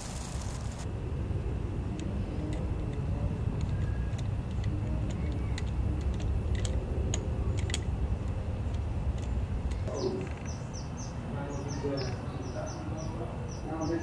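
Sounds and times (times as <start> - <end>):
steady low rumble: 0.0 - 14.0
hand tools clicking and tapping: 3.6 - 9.9.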